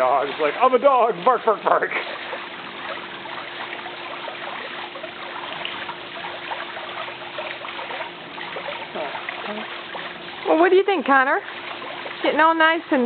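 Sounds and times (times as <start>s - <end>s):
faint hum: 0.0s - 13.0s
rushing water: 0.0s - 13.0s.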